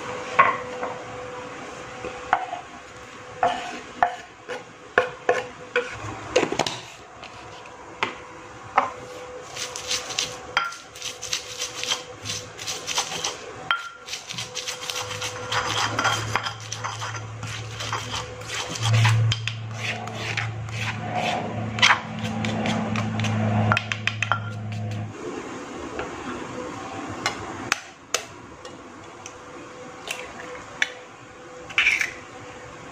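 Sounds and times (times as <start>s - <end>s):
low steady hum: 0.0s - 32.9s
knife scraping wooden board: 3.4s - 4.6s, 9.5s - 25.1s
stone pestle grinding in mortar: 9.5s - 25.1s.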